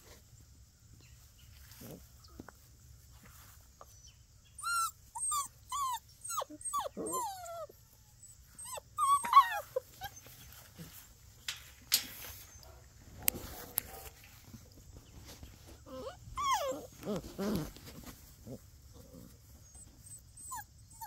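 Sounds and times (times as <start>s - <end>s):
puppies whining and yipping: 4.6s - 11.0s, 15.2s - 18.0s, 19.5s - 21.0s.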